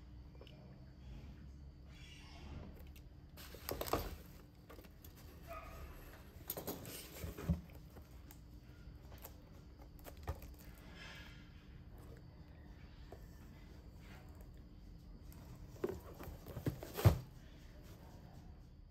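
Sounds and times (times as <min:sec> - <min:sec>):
cardboard and plastic rustling: 0:03.4 - 0:08.4, 0:15.3 - 0:17.5.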